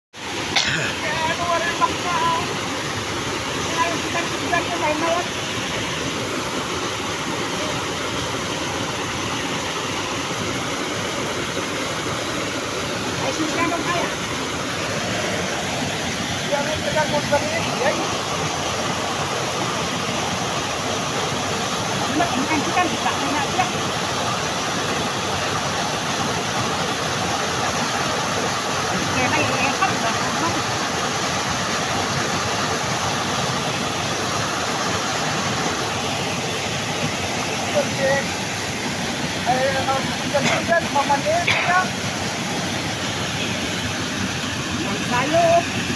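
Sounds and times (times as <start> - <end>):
waterfall rushing over boulders: 0.2 - 45.9.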